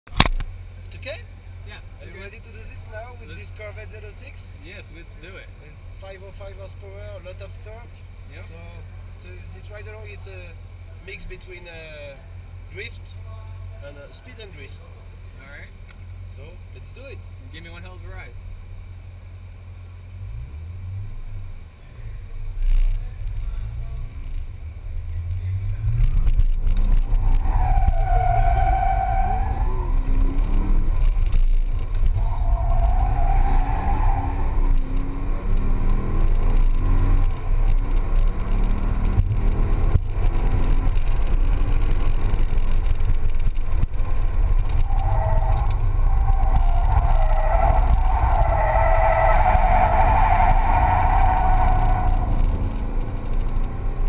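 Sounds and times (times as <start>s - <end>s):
car engine revving: 20.1s - 54.0s
tyre squeal: 26.8s - 30.9s, 32.1s - 35.0s, 44.7s - 52.5s.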